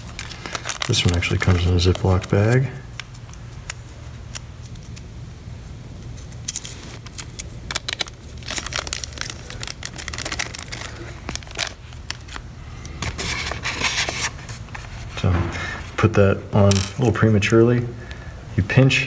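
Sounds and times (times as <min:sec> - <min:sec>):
plastic bag crinkling: 0:00.0 - 0:03.4, 0:06.1 - 0:17.4
steady low hum: 0:00.0 - 0:19.0.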